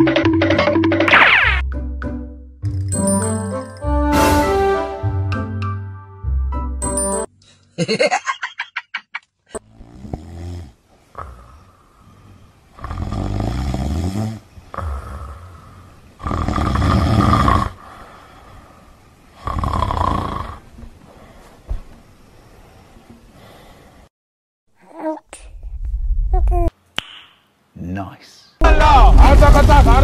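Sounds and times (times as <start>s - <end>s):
loud snoring: 9.6s - 11.8s, 12.7s - 17.8s, 19.4s - 20.7s.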